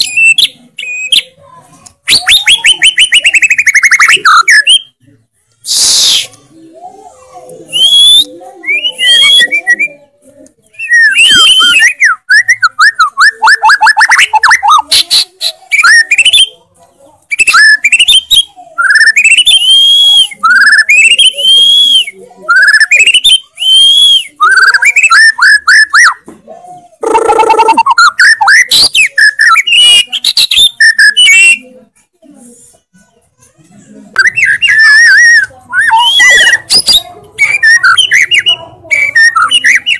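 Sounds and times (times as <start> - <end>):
songbird singing whistles and trills: 0.0 - 1.4, 2.1 - 5.0, 7.7 - 10.0, 10.7 - 16.6, 17.3 - 26.2, 27.0 - 31.6, 34.2 - 39.9.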